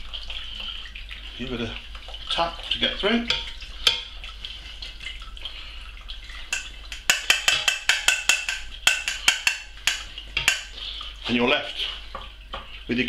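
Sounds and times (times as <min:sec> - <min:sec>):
colander tapping on metal pan: 0:03.2 - 0:04.1, 0:06.5 - 0:10.8.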